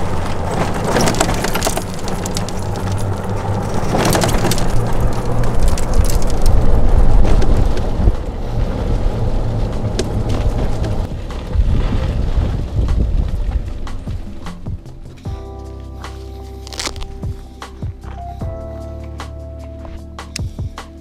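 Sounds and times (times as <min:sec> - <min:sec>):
golf cart rumbling on pavement: 0:00.0 - 0:15.4
rattles: 0:00.0 - 0:15.6.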